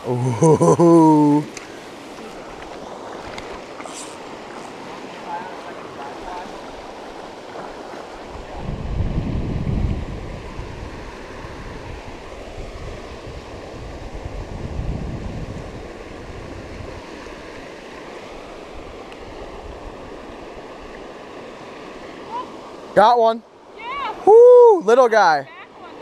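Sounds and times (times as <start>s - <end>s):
rushing stream water: 0.0s - 26.0s
wind buffeting microphone: 8.2s - 17.4s.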